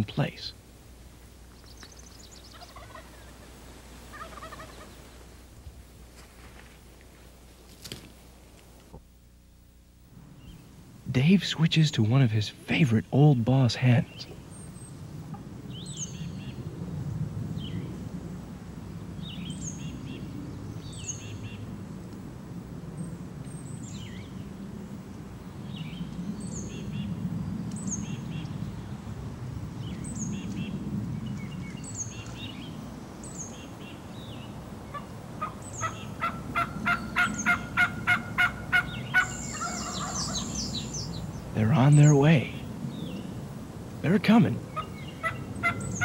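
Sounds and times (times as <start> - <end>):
small songbirds chirping: 1.4 - 3.4, 12.2 - 16.7, 17.5 - 18.1, 19.1 - 22.2, 22.9 - 46.0
turkey call yelps: 2.5 - 3.4, 4.1 - 4.9, 34.9 - 40.9, 44.7 - 46.0.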